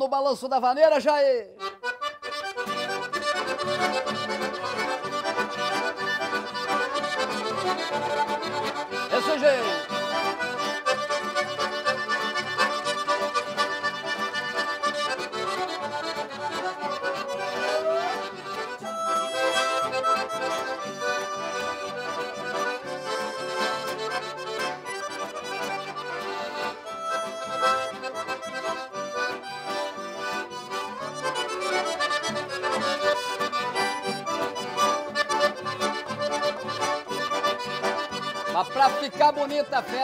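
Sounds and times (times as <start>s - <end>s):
accordions playing dance tune: 0.0s - 40.0s
acoustic guitar strumming: 1.6s - 40.0s.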